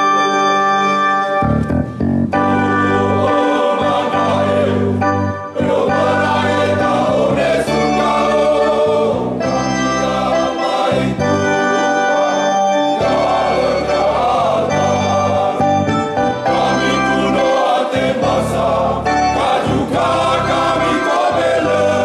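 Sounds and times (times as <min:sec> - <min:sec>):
organ bass chords: 0:00.0 - 0:22.0
choir singing a hymn: 0:02.4 - 0:22.0.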